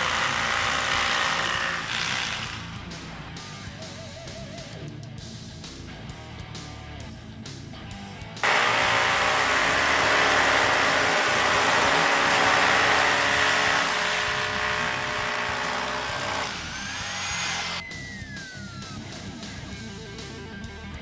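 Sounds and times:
rotary hammers drilling into concrete: 0:00.0 - 0:02.8, 0:08.4 - 0:17.8.

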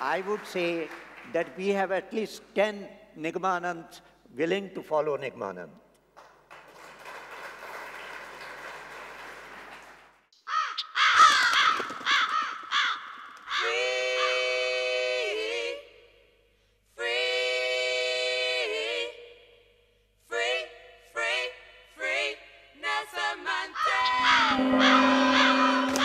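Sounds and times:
audience applause: 0:00.0 - 0:01.6, 0:06.5 - 0:10.3
crows cawing: 0:10.5 - 0:13.6
long held musical tones bending down: 0:23.8 - 0:26.0.

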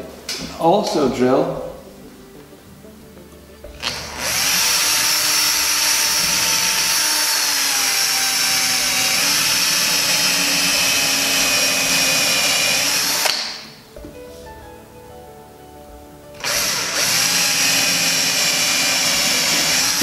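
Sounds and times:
power drill boring: 0:03.8 - 0:13.8, 0:16.4 - 0:20.0.

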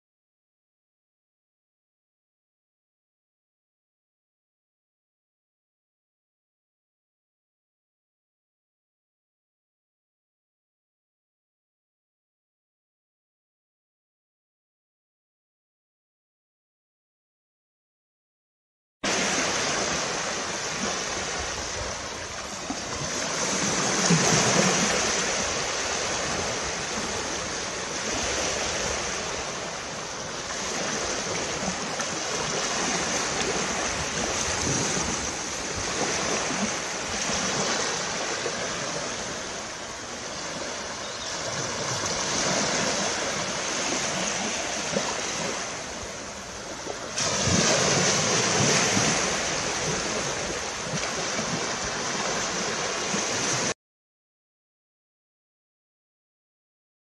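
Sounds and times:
small waves breaking on sand: 0:19.0 - 0:53.8.

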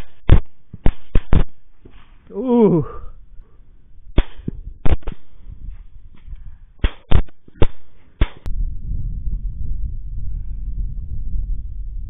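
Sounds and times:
rifle shots: 0:04.2 - 0:05.3.

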